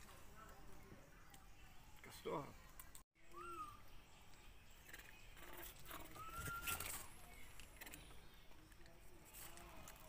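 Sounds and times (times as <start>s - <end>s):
whistle-like animal call: 6.1s - 6.9s.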